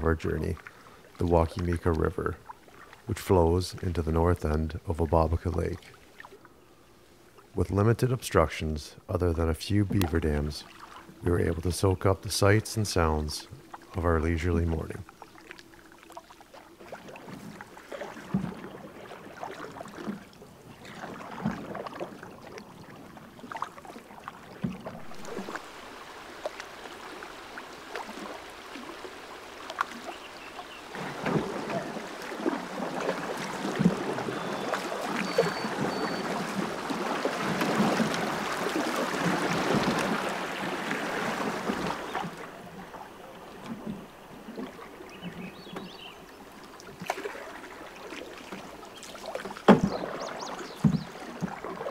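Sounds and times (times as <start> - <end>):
paddles splashing in water: 0.0 - 7.8, 9.7 - 51.9
paddle clicks: 9.8 - 11.0, 29.6 - 36.6.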